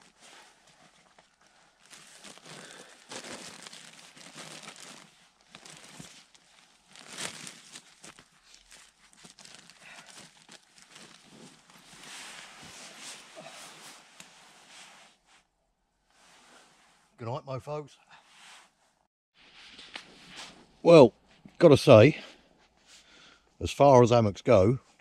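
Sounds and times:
crinkling and rustling material: 0.0 - 17.1.

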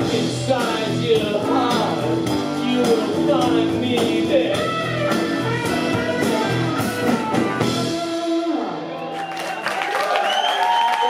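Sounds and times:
rock band playing: 0.0 - 9.3
crowd cheering and clapping: 8.6 - 11.0.

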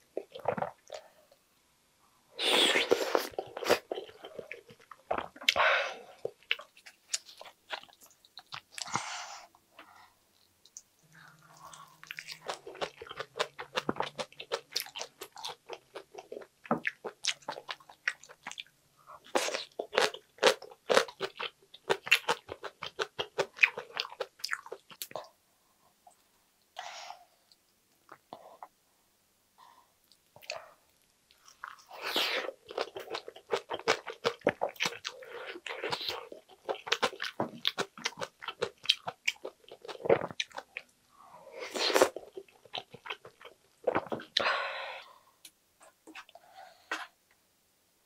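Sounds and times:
person chewing wetly: 10.4 - 25.3, 31.3 - 40.9, 41.9 - 44.4.

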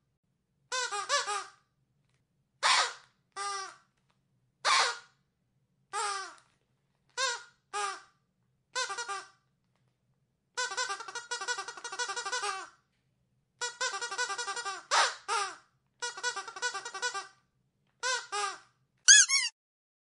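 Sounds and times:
squeaky dog toy squeaking: 0.7 - 1.6, 2.6 - 3.8, 4.6 - 5.1, 5.9 - 6.4, 7.2 - 8.1, 8.8 - 9.4, 10.6 - 12.8, 13.6 - 17.4, 18.0 - 19.6.

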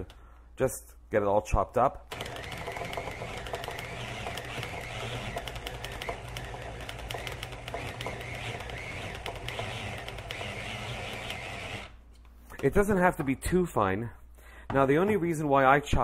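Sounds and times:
food processor motor hum: 2.1 - 12.0.

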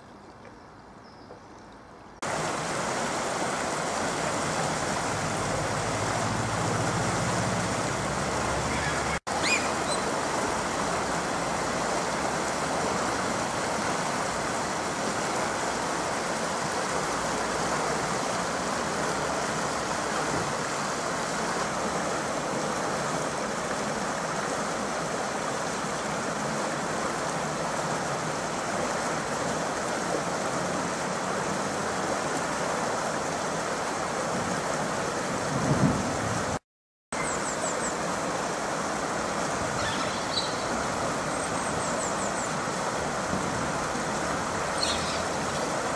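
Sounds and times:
river water rushing: 1.8 - 36.6, 37.2 - 45.9.

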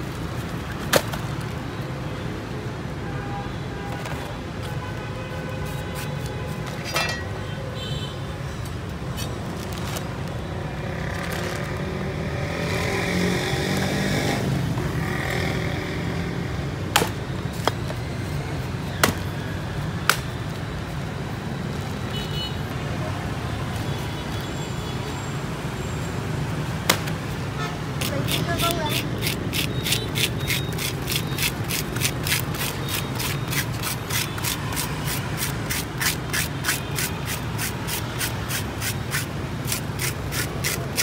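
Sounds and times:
street traffic noise: 0.0 - 41.0
vehicle passing: 10.6 - 16.8.

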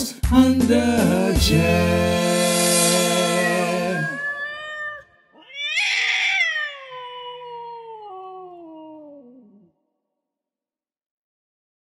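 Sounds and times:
cat meowing: 3.6 - 9.7.

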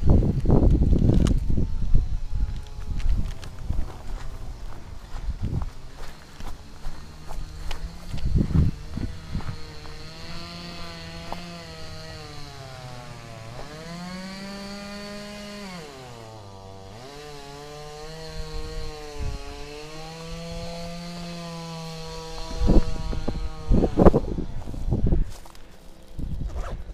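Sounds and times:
engine running: 1.3 - 26.1
footsteps: 2.5 - 12.5, 22.0 - 26.8.

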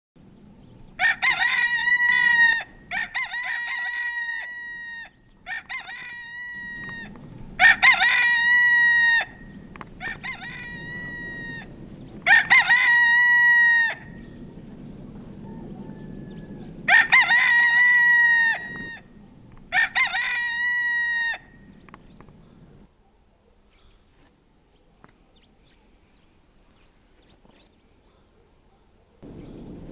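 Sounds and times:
rooster crowing: 1.0 - 14.3, 15.2 - 19.1, 19.7 - 21.6.

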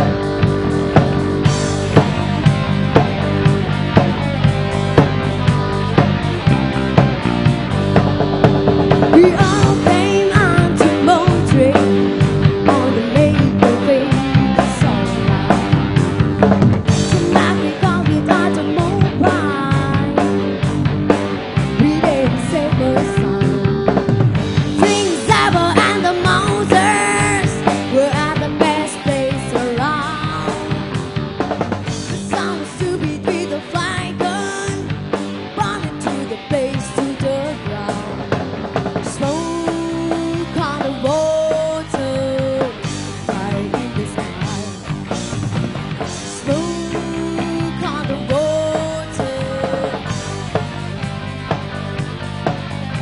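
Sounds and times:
drum kit: 0.0 - 53.0
rock band playing: 0.0 - 53.0
woman singing: 9.0 - 15.5, 17.0 - 20.6, 21.7 - 31.0, 32.1 - 38.4, 39.1 - 44.9, 46.2 - 50.2.

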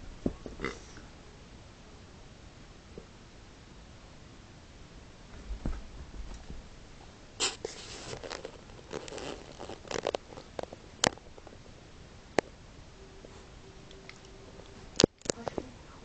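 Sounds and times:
fabric rustling: 7.4 - 10.7.

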